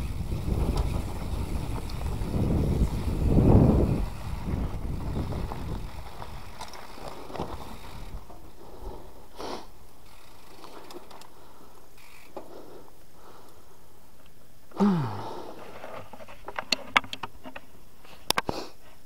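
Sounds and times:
wind on microphone: 0.0 - 8.2
bike tyre rumble: 0.0 - 13.9, 14.7 - 16.6
faint clicks: 9.9 - 13.6.

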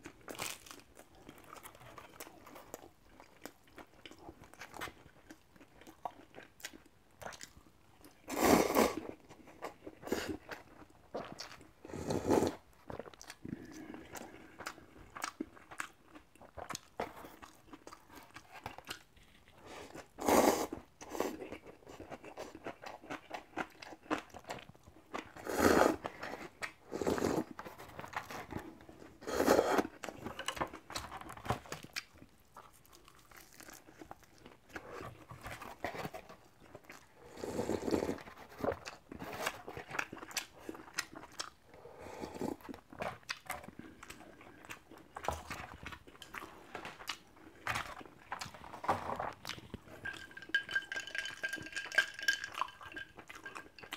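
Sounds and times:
chewing and crunching: 0.0 - 53.9
noodles slurped: 11.9 - 12.6, 25.3 - 27.6, 29.2 - 30.1.

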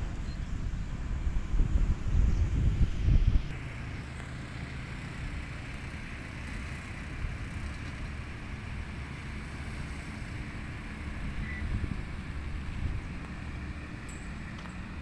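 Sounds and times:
road traffic hum: 0.0 - 15.0.

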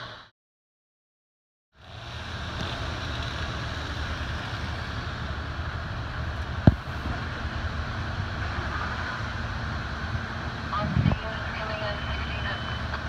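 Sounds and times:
fire truck engines idling: 1.8 - 13.0
wind on microphone: 10.7 - 11.4.

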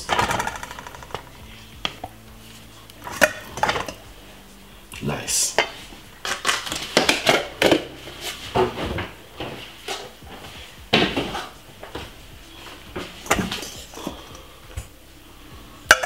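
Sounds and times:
kitchen items knocking and clattering: 0.0 - 2.1, 3.0 - 4.0, 5.6 - 12.1, 12.9 - 14.3.

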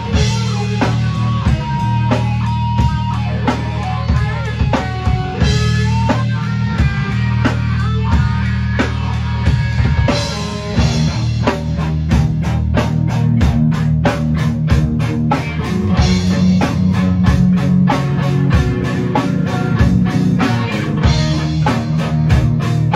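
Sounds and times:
bass: 0.0 - 22.9
drum kit beat: 0.0 - 22.9
electric guitar: 0.0 - 22.9.

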